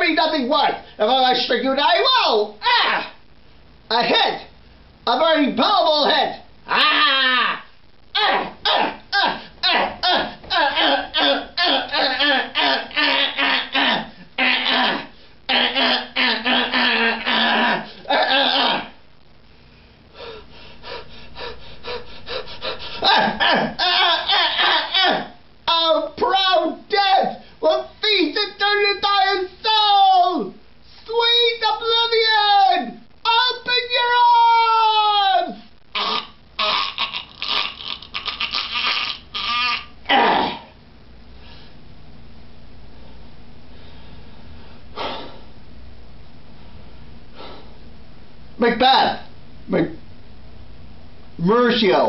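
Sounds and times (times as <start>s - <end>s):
strangled cry: 2.2s - 3.2s, 6.1s - 19.0s, 20.2s - 27.4s, 28.9s - 40.8s
person groaning: 6.7s - 19.0s, 21.4s - 25.4s, 35.9s - 40.8s
person gasping breaths: 20.1s - 23.2s, 43.1s - 45.6s, 47.3s - 47.8s
person making rasping gasps: 44.9s - 45.5s, 47.4s - 47.8s.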